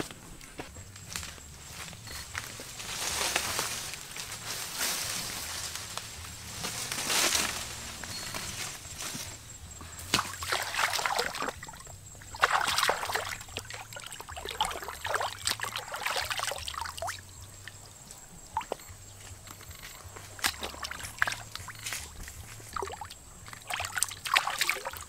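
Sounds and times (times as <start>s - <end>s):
water sloshing and splashing: 10.1s - 17.8s, 18.4s - 18.8s, 20.3s - 25.0s.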